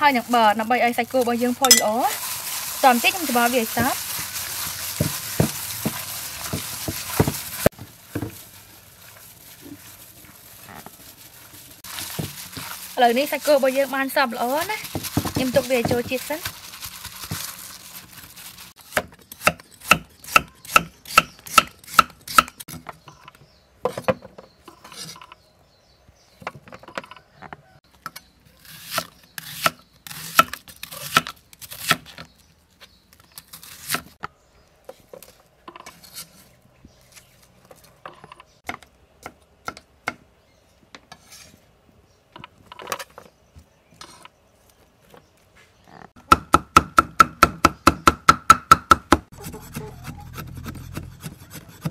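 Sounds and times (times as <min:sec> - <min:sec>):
cleaver chopping rhythmically: 0:46.2 - 0:51.9.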